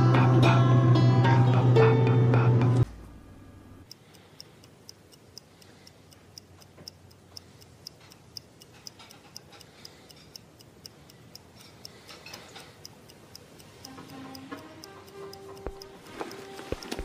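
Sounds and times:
faint clock ticking: 3.8s - 17.0s.

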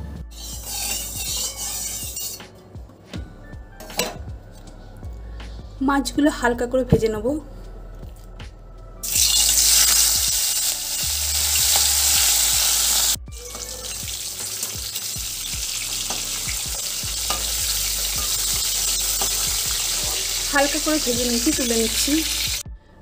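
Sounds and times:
fish sizzling in hot oil: 9.0s - 22.6s.

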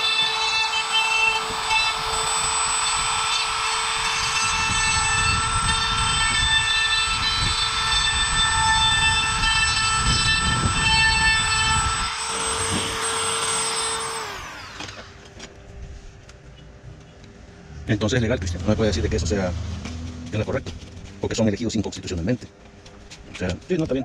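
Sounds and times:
power tool motor whine: 0.0s - 15.9s.

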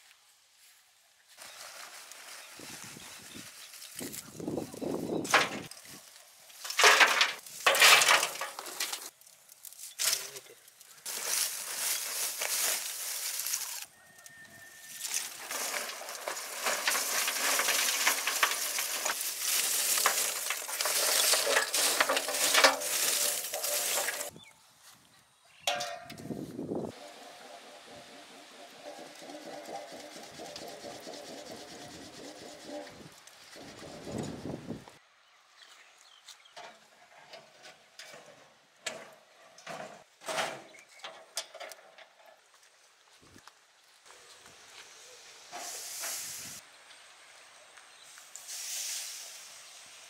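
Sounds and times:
charcoal clattering into metal barrel: 5.2s - 9.1s, 9.7s - 10.4s, 11.0s - 13.9s, 14.9s - 24.3s, 25.7s - 26.2s, 36.6s - 42.0s
metal grill grate scraping and clinking: 6.6s - 9.1s, 14.9s - 24.3s, 25.7s - 26.3s, 36.6s - 42.4s.

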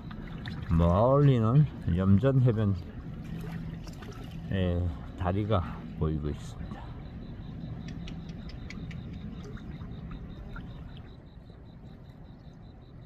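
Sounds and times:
low rumbling background noise: 0.0s - 13.0s
faint high chirps and clicks: 7.5s - 11.3s.

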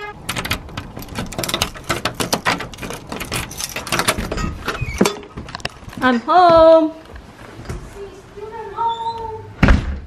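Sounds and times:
clicks knocks and rustles: 0.3s - 6.1s.

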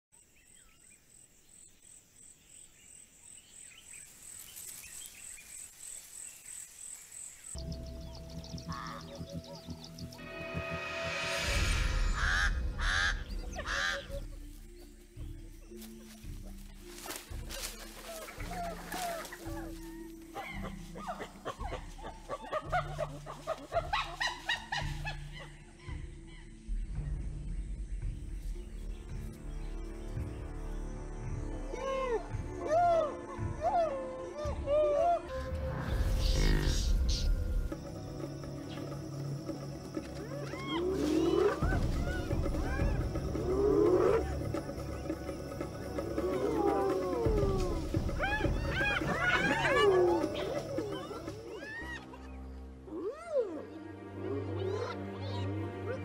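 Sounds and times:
background music with sustained tones: 4.9s - 56.0s
high pulsing chirp: 7.6s - 16.3s
hyenas giggling: 17.5s - 26.1s, 40.5s - 53.3s.

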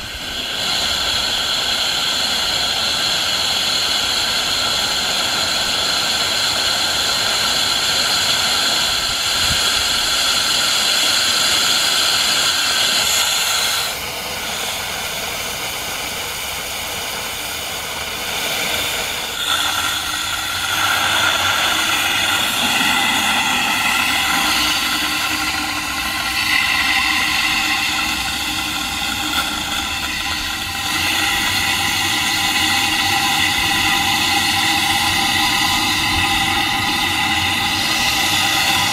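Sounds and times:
steam engine hissing: 0.0s - 38.9s.

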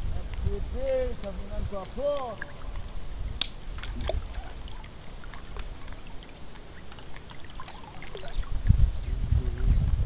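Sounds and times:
water trickling and dripping: 0.3s - 9.2s
sharp click: 3.4s - 3.6s.

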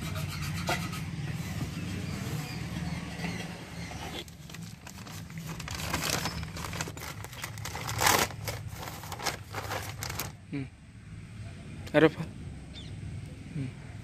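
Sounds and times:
plastic packaging crinkling: 4.2s - 10.4s.

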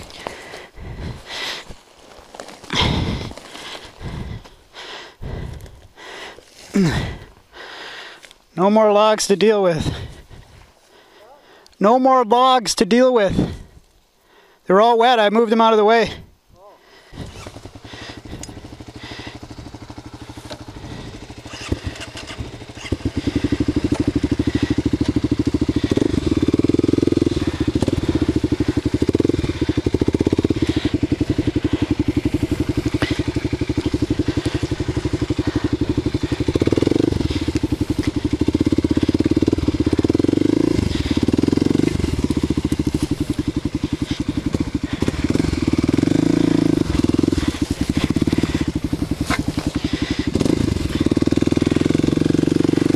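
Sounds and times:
motorcycle engine revving: 0.0s - 7.3s, 17.0s - 52.9s
branches crackling against bike: 0.0s - 8.6s, 13.5s - 14.2s, 17.1s - 52.9s.

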